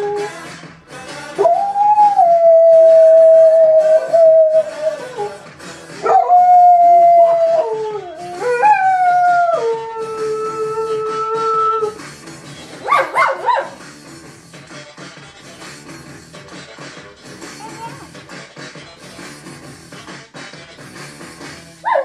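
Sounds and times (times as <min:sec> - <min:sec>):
rock song playing: 0:00.0 - 0:22.0
dog howling: 0:01.4 - 0:05.4, 0:06.0 - 0:12.0.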